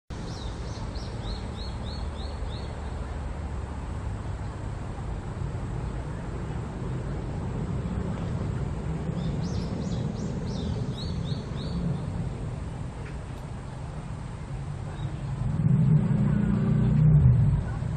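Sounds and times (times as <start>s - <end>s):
low rumble: 6.3s - 17.9s
cicada singing: 9.0s - 12.4s.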